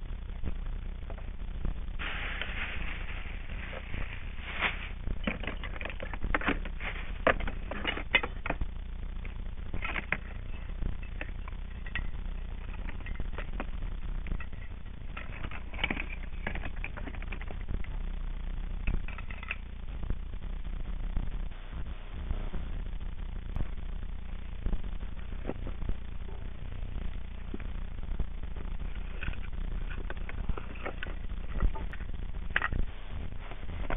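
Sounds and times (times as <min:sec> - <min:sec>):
steady low rumble: 0:00.0 - 0:33.9
objects clattering in plastic box: 0:02.0 - 0:17.7, 0:18.8 - 0:19.6.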